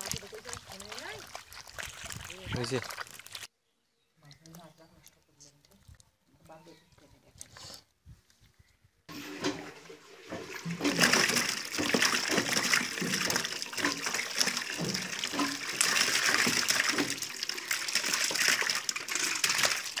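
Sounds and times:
fish splashing in water: 0:00.0 - 0:03.5, 0:10.6 - 0:20.0.

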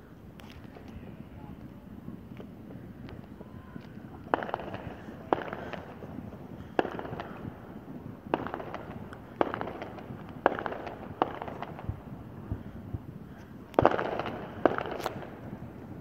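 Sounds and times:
fireworks bangs with crackle: 0:00.2 - 0:16.0.

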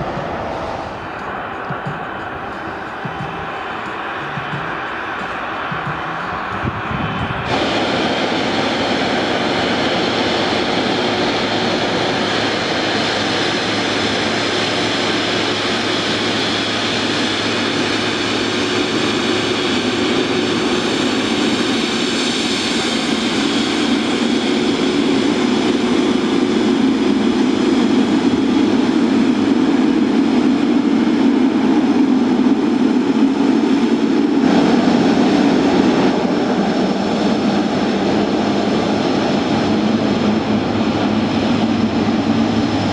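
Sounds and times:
high fan whine: 0:00.0 - 0:13.2
jet engine roar: 0:00.0 - 0:42.9.

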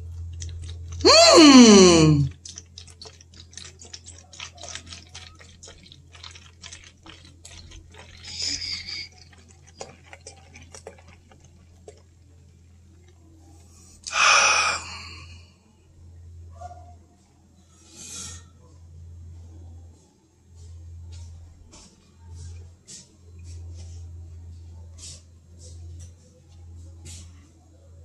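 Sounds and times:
drink pouring and fizzing: 0:00.0 - 0:13.4.

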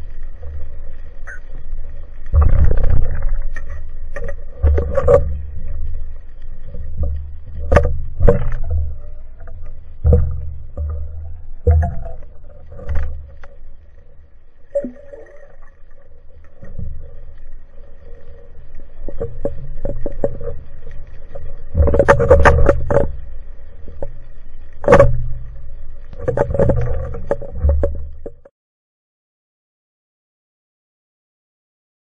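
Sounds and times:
underwater rumbling surges: 0:00.0 - 0:28.4
sharp clicks and knocks: 0:00.2 - 0:14.0, 0:18.7 - 0:28.5.

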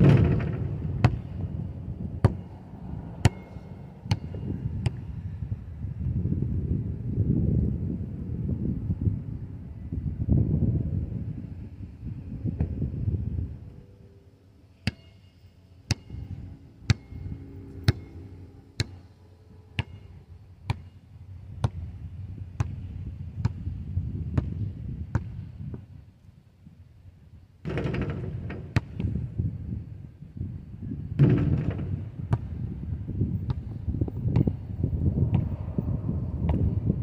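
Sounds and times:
basketball bouncing on asphalt: 0:00.0 - 0:05.3, 0:15.9 - 0:17.2, 0:17.8 - 0:18.1, 0:18.8 - 0:19.1, 0:19.8 - 0:25.9, 0:27.6 - 0:29.3, 0:31.2 - 0:35.6, 0:36.4 - 0:36.8
wind rumbling on microphone: 0:00.0 - 0:14.2, 0:15.9 - 0:37.0.

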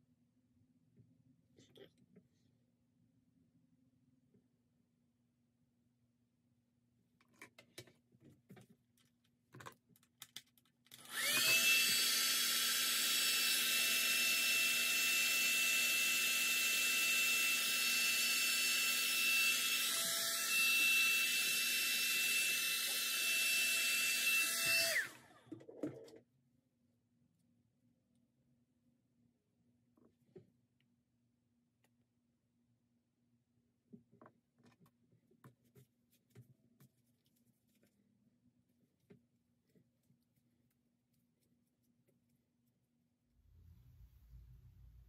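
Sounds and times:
hair dryer running: 0:11.0 - 0:25.3.

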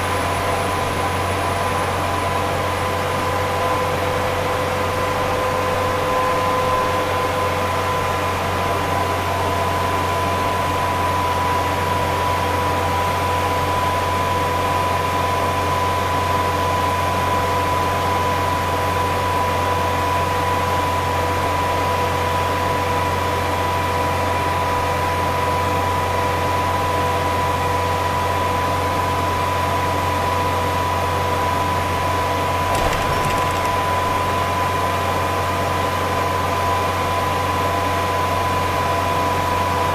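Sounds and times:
tyre and road noise: 0:32.7 - 0:34.3.

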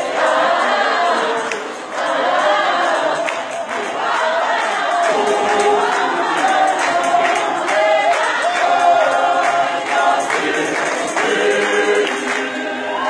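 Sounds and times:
choir singing gospel song: 0:00.0 - 0:13.0
hand claps: 0:01.4 - 0:02.1, 0:03.1 - 0:12.6.

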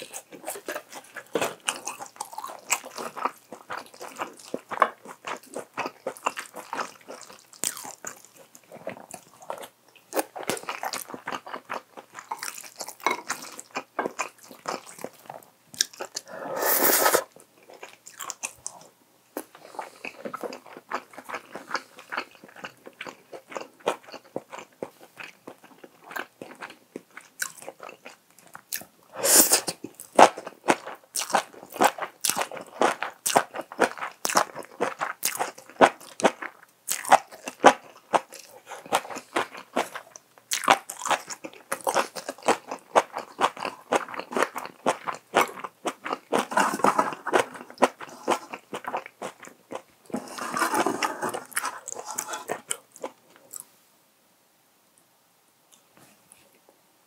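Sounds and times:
slurping: 0:16.1 - 0:17.3, 0:50.1 - 0:52.8.

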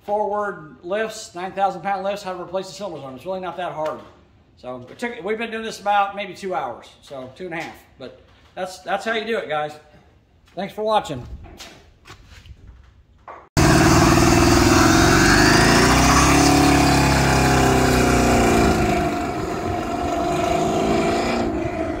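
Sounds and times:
truck engine at high revs: 0:13.6 - 0:22.0
tyres spinning: 0:13.6 - 0:22.0.

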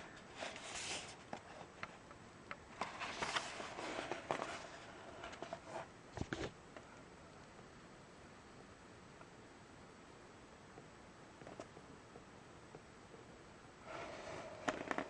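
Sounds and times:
cardboard and paper rustling: 0:00.2 - 0:01.7, 0:02.8 - 0:06.6.

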